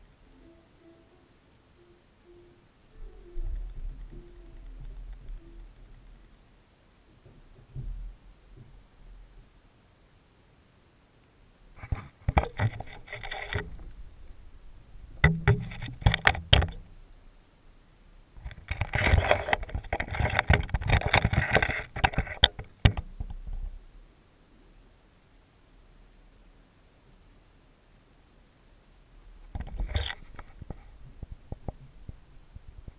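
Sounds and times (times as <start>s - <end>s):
camera housing rubbing and knocking: 11.8s - 13.8s, 15.2s - 16.8s, 18.4s - 23.4s, 29.6s - 32.0s.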